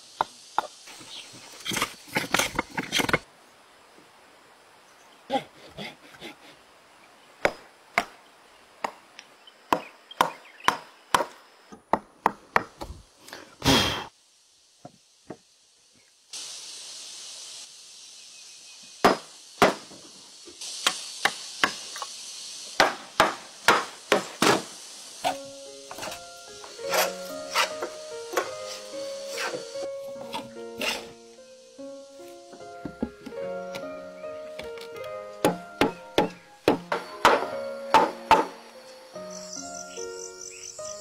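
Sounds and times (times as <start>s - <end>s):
steady scraping hiss: 0.0s - 9.4s, 12.8s - 41.0s
hammer and chisel on wood: 9.7s - 13.0s, 19.0s - 20.0s, 20.8s - 22.1s, 35.4s - 38.5s.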